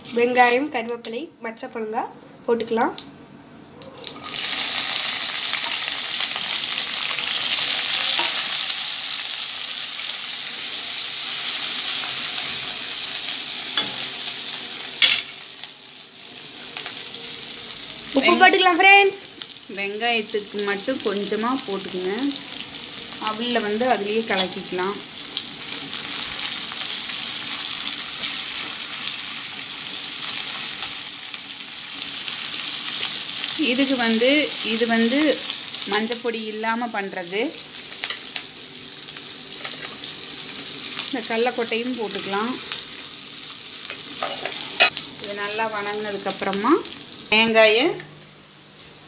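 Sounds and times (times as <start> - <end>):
onions sizzling in hot oil: 0.0 - 3.0, 4.0 - 49.0
spatula scraping a wok: 43.9 - 45.0.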